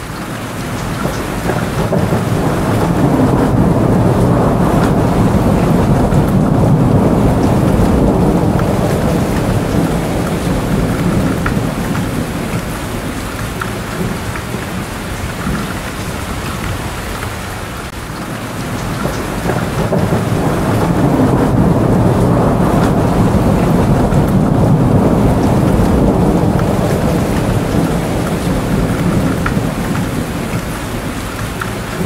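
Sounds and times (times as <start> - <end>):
rolling thunder rumble: 0.0 - 32.0
steady rain falling: 0.0 - 32.0.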